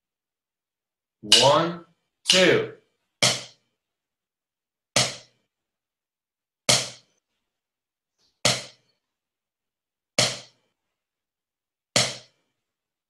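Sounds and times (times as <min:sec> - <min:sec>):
drumstick taps on practice pad: 0:03.2 - 0:03.5.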